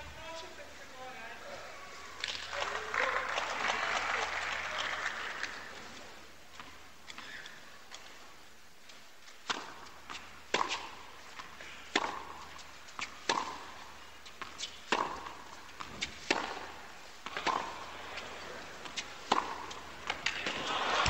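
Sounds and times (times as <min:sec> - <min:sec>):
tennis ball bouncing: 0:09.2 - 0:21.0
racket hitting tennis ball: 0:09.4 - 0:21.0.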